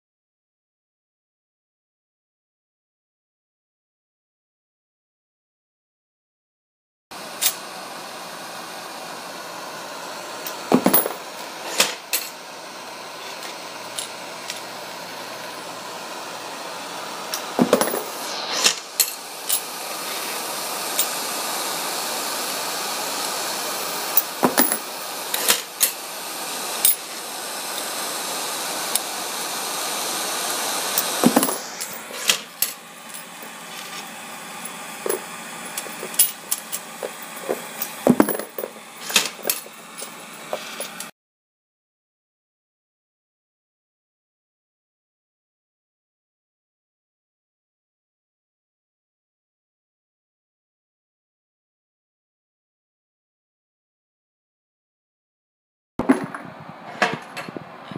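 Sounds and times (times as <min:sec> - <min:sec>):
gas torch flame hissing: 0:07.2 - 0:41.1.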